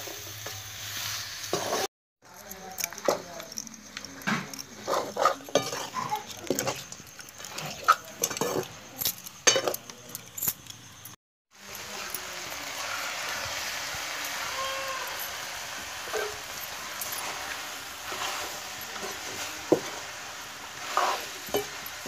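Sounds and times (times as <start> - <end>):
meat sizzling: 0.0 - 1.9, 11.5 - 22.0
metal spoon scraping a wok: 0.0 - 9.8, 12.7 - 22.0.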